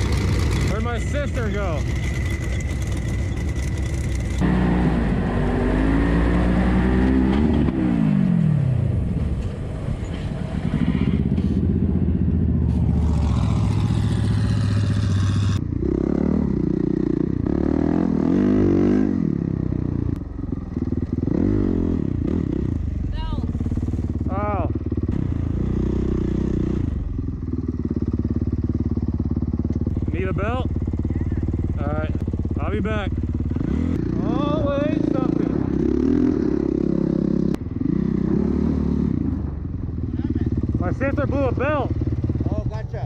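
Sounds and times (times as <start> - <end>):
dirt bike engine revving: 0.0 - 8.8, 10.4 - 19.9, 20.5 - 42.8.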